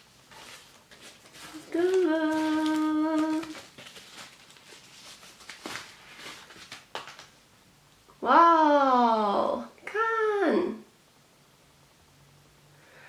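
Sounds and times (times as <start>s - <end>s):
woman humming: 1.7s - 3.5s.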